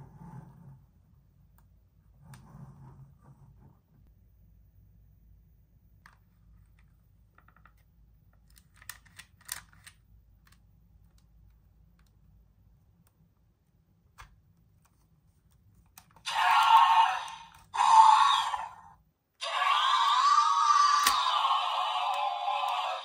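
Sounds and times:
electronic dinosaur roar: 16.3 - 23.0.

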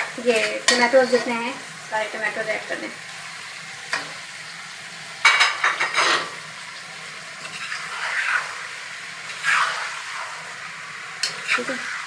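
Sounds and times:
faint steady sizzle: 0.0 - 12.0
wooden spoon scraping a pan: 5.5 - 6.4, 7.4 - 10.5.

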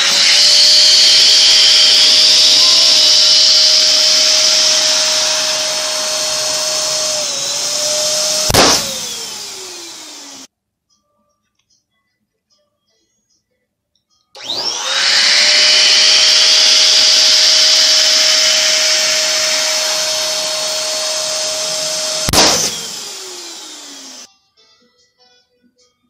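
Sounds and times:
electric balloon pump whining: 0.0 - 10.5, 14.4 - 24.3
balloon bursting: 6.1 - 9.2, 21.6 - 22.9.

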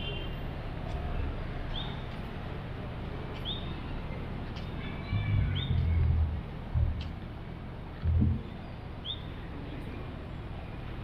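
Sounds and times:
low background rumble: 5.0 - 9.0
low dull bumps: 5.1 - 8.6.

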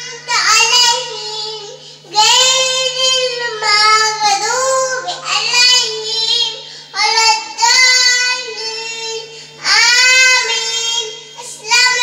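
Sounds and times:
faint low hum: 0.0 - 12.0
girl singing into a microphone: 0.0 - 12.0.

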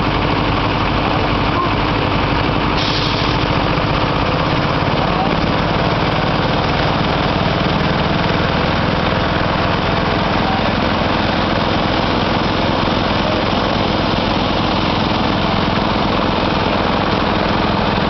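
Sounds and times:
engine running steadily: 0.0 - 18.0.

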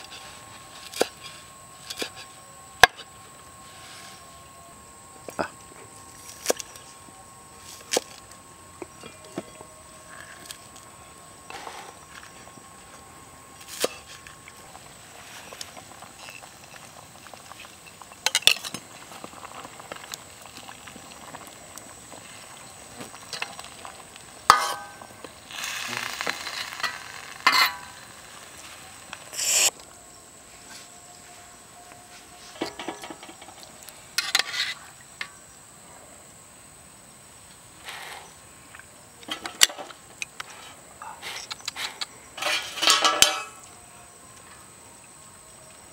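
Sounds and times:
metal ladle scraping a pan: 24.5 - 25.0, 26.2 - 28.0, 29.3 - 29.7, 32.6 - 33.5, 34.2 - 34.8, 41.3 - 43.6.

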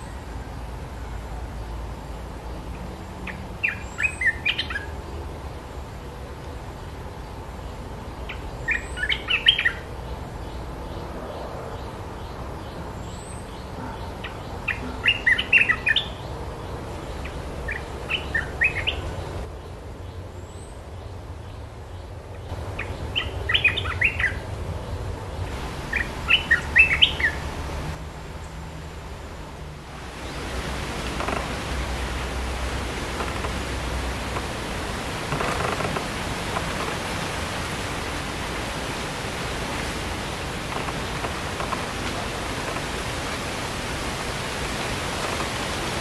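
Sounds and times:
bird chattering song: 8.3 - 9.9, 25.9 - 27.4.

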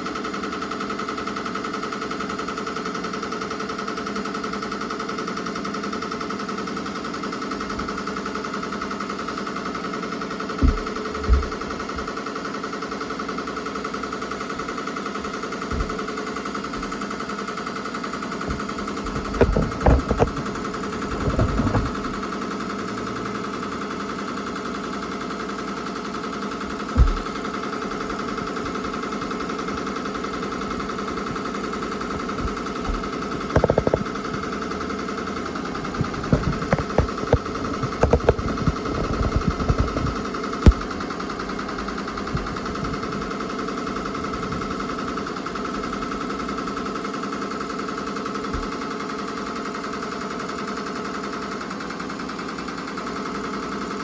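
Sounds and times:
embroidery machine clatter: 0.0 - 54.0
steady machine whine: 0.0 - 54.0
loud machine knocks: 10.5 - 12.4, 14.5 - 17.2, 18.4 - 22.5, 26.5 - 44.8.

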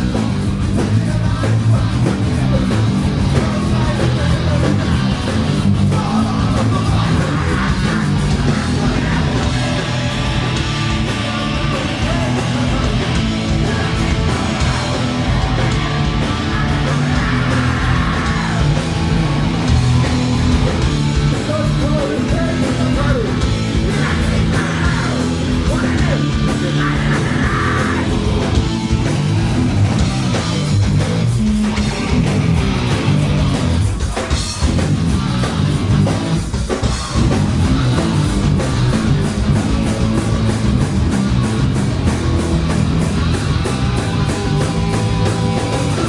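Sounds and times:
distorted electric guitar: 0.0 - 46.0
heavy rock music: 0.0 - 46.0
person yelling vocals: 16.4 - 18.8, 21.5 - 28.2.

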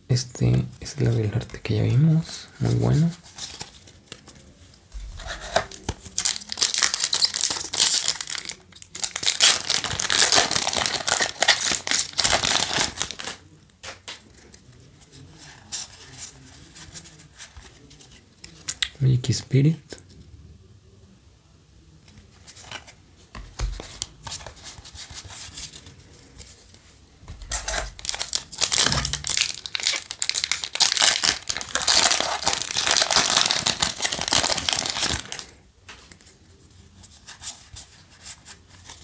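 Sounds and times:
wrapper and cards rustling: 2.5 - 18.8, 22.4 - 35.5
foil wrapper tearing and crinkling: 5.5 - 13.4, 27.5 - 35.5.

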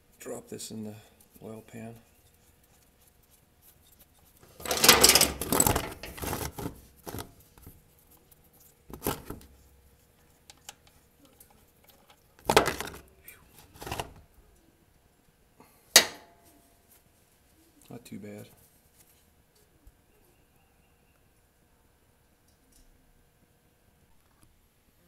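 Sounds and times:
handling rustle: 1.2 - 14.3.

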